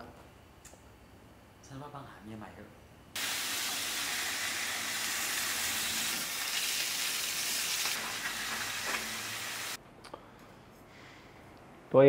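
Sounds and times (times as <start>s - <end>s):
sausages sizzling in frying pan: 3.2s - 9.8s.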